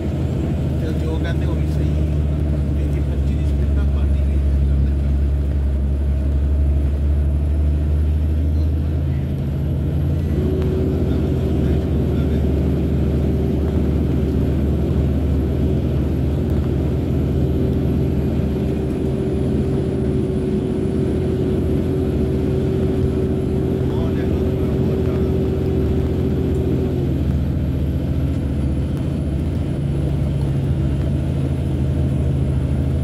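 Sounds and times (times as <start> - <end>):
steady whine: 0.0 - 33.0
truck diesel engine running: 0.0 - 33.0.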